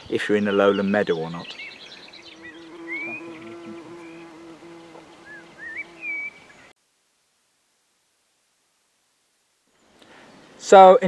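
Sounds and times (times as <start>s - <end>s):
bird chirps: 0.1s - 6.7s
insect buzzing: 2.0s - 6.7s.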